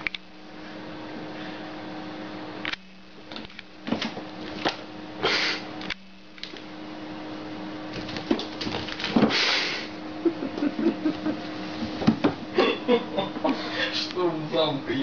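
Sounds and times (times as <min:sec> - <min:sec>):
electrical hum: 0:00.0 - 0:15.0
cats moving knocks and rustles: 0:07.9 - 0:09.4.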